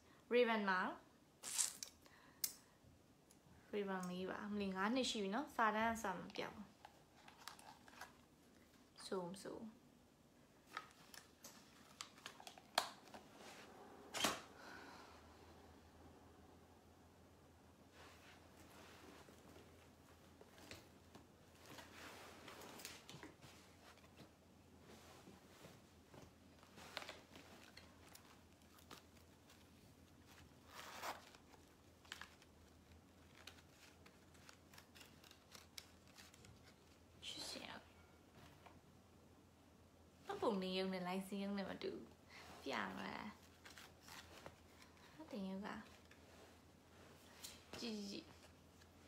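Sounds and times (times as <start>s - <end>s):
faint rustles and handling noises: 2.6s - 16.5s, 17.6s - 49.0s.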